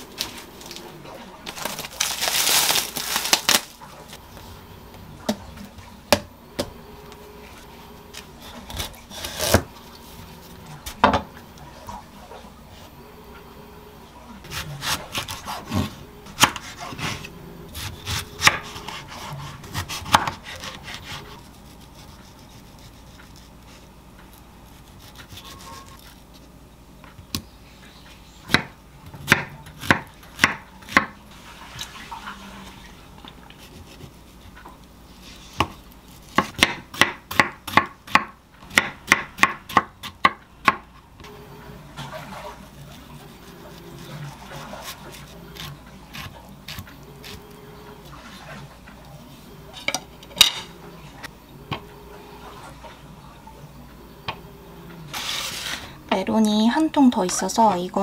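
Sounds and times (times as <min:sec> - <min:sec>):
knife chopping on wooden board: 0:17.8 - 0:21.3, 0:35.6 - 0:40.8.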